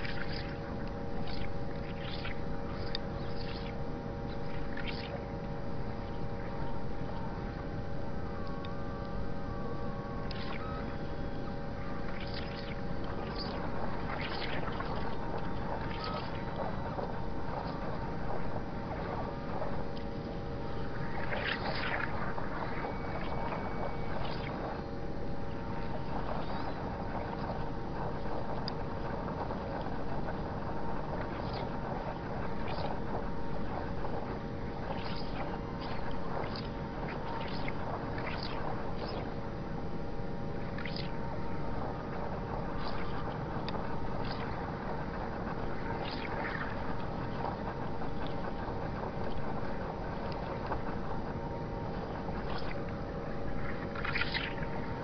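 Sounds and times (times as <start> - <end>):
held hum tones: 0.0 - 55.0
faint short swishes: 53.6 - 55.0.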